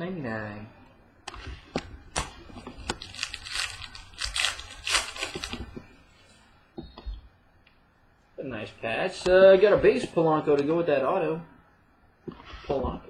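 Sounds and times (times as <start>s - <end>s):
card wrapper crinkling: 2.1s - 5.8s.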